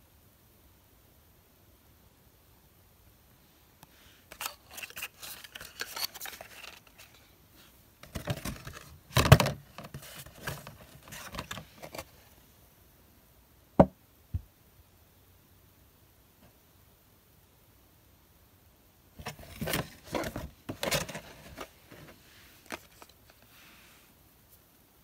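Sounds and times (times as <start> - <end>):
packaging rustling and clicking: 4.3 - 7.2, 8.0 - 12.1, 19.2 - 23.4.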